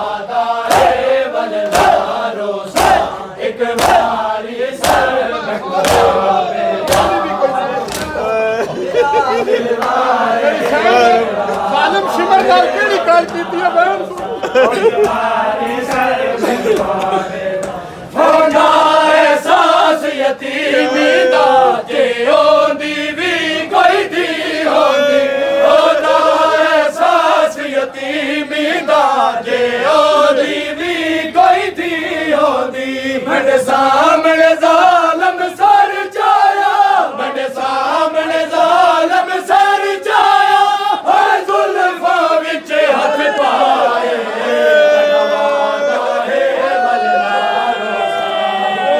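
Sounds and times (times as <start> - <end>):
men chanting in unison: 0.0 - 48.9
chest-beating slaps: 0.6 - 4.2, 4.8 - 5.2, 5.8 - 8.2.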